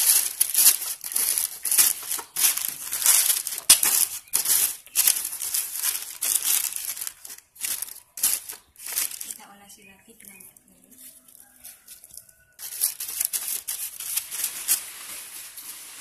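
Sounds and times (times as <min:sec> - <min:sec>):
baking paper crinkling: 0:00.0 - 0:16.0.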